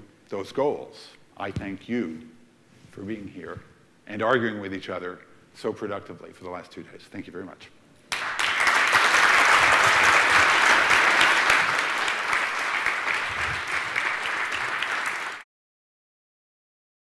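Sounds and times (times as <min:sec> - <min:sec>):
audience applauding: 0:08.1 - 0:15.4.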